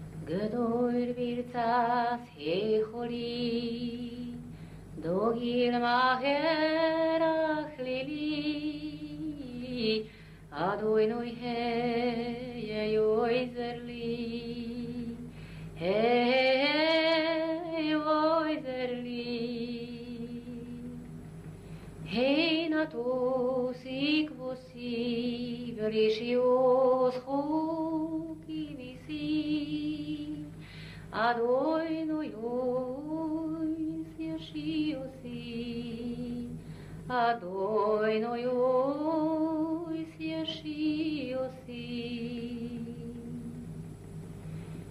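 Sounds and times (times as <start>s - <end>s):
woman singing slowly: 0.2s - 21.1s, 22.1s - 30.5s, 31.1s - 43.7s
singer breathing: 4.5s - 5.0s, 10.0s - 10.5s, 15.3s - 15.8s, 21.6s - 22.0s, 30.5s - 31.1s, 36.6s - 37.1s, 44.4s - 44.9s.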